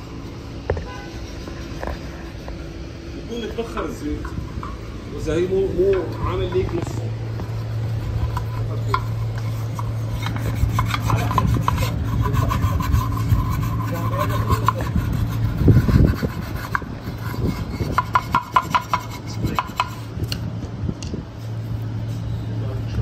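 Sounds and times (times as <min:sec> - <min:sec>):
steady low hum: 0:00.0 - 0:23.0
scraping sealant off metal: 0:03.6 - 0:20.4.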